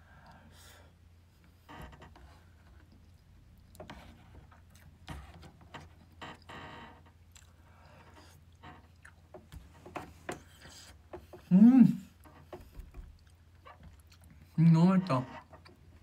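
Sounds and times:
chewing: 0:07.3 - 0:09.5, 0:13.1 - 0:14.6.

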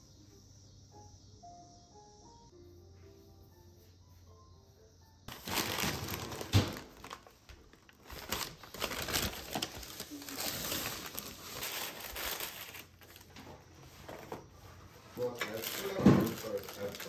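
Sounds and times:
paper bag rustling: 0:05.3 - 0:17.0.

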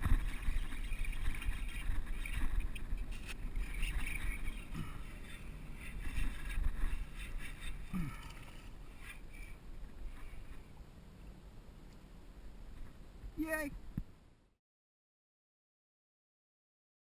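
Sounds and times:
rustling against camera microphone: 0:00.0 - 0:10.8.

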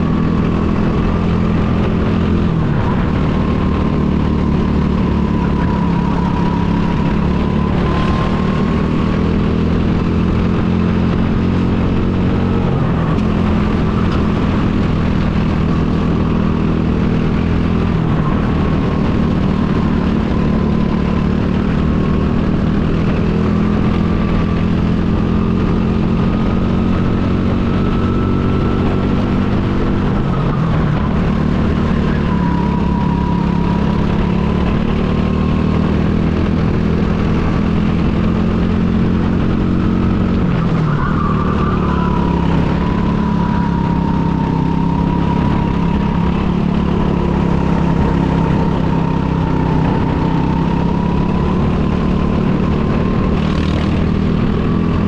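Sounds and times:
go-kart engine running: 0:00.0 - 0:55.0.

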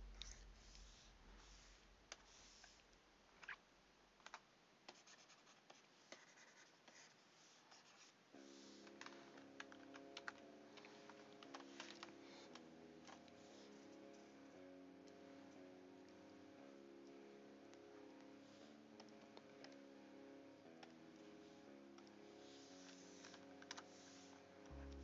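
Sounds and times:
faint background music: 0:00.0 - 0:25.0
computer keyboard clicks: 0:04.2 - 0:05.1, 0:08.9 - 0:13.3.

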